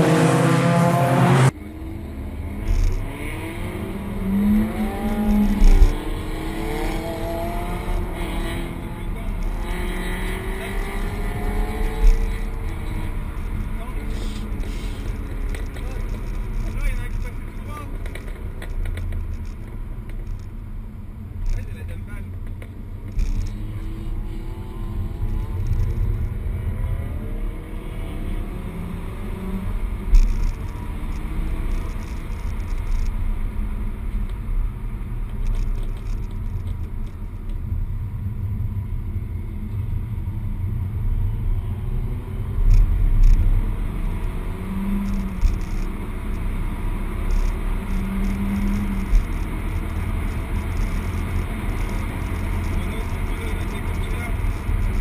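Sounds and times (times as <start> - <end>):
car engine revving: 0.0 - 20.6, 41.3 - 55.0
tyre and road noise: 0.0 - 55.0.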